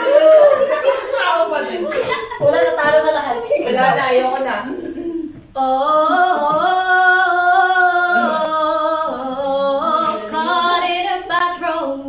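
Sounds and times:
woman singing into microphone: 0:05.5 - 0:12.0.

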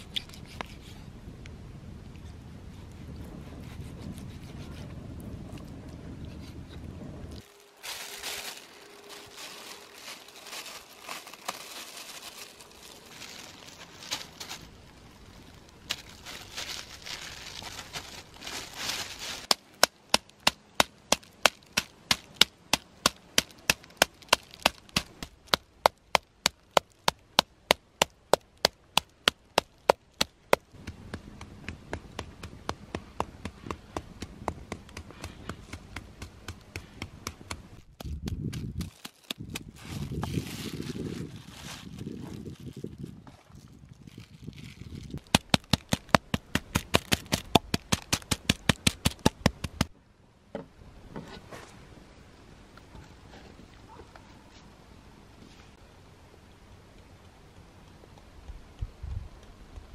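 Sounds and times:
plastic bag crinkling: 0:07.4 - 0:19.5, 0:38.6 - 0:43.1.

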